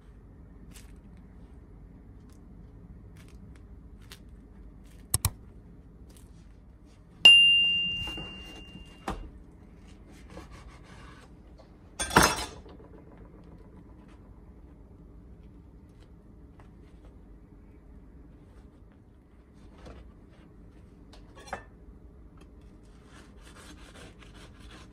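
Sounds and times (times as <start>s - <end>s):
quick clicks: 5.1s - 5.4s
bell-like ding: 7.3s - 9.2s
knife clattering on counter: 12.0s - 12.7s.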